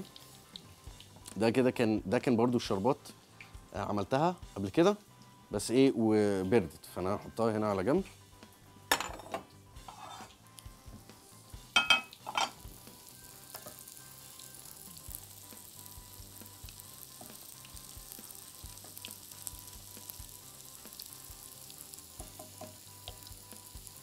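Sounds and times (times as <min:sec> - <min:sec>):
food frying in hot oil: 0:00.0 - 0:01.4, 0:09.8 - 0:24.0
utensil knocking against pan: 0:11.8 - 0:12.6, 0:22.2 - 0:22.8.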